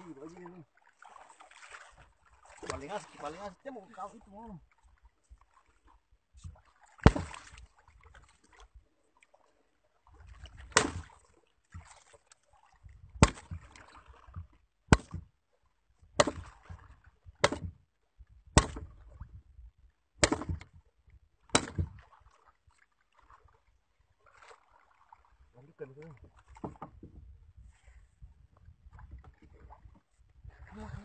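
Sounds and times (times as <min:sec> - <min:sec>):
water sloshing: 0:00.0 - 0:17.9, 0:20.2 - 0:27.9, 0:28.6 - 0:31.0
pole striking a wooden boat: 0:02.4 - 0:03.2, 0:06.4 - 0:07.6, 0:10.6 - 0:12.1, 0:13.2 - 0:15.3, 0:16.1 - 0:17.8, 0:18.5 - 0:19.2, 0:20.2 - 0:20.8, 0:21.5 - 0:22.2, 0:26.1 - 0:27.2.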